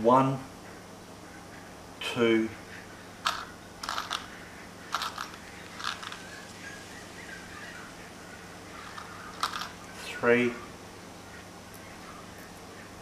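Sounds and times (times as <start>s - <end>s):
small metal parts clicking on wood: 3.2s - 4.3s, 4.9s - 6.3s, 8.8s - 9.8s.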